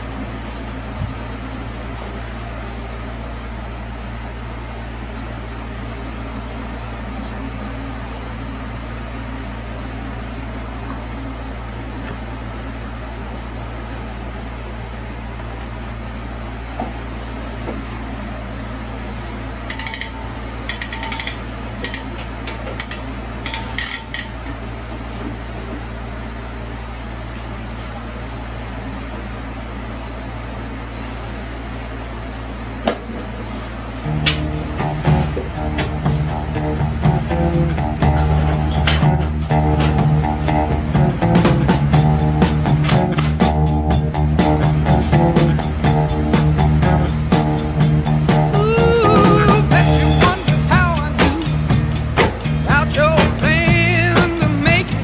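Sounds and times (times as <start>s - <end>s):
low mechanical hum: 0.0s - 55.0s
tools clicking and clattering: 19.7s - 24.4s.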